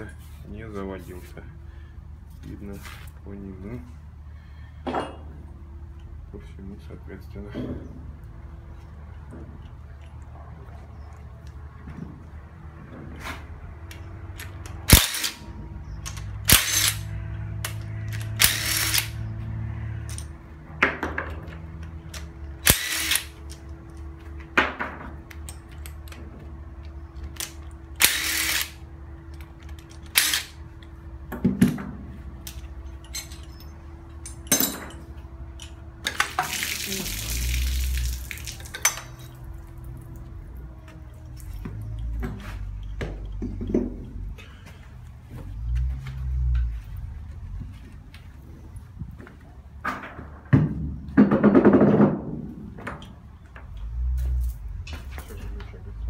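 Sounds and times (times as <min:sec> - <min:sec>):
impact wrench undoing bolts: 0:16.1 - 0:17.0, 0:29.4 - 0:30.6.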